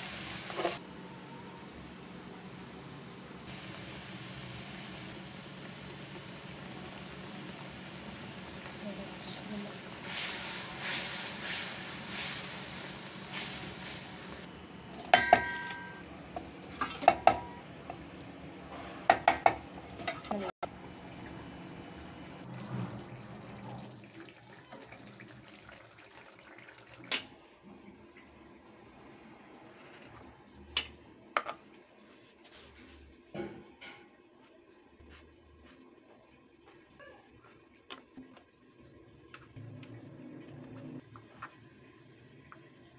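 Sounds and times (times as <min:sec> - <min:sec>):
metal spoon clinking on cookware: 0:15.1 - 0:16.0.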